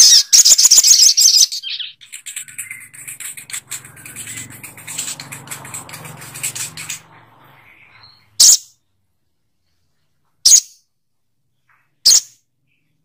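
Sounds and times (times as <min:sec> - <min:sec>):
bird giving sharp high calls: 0:00.0 - 0:08.7.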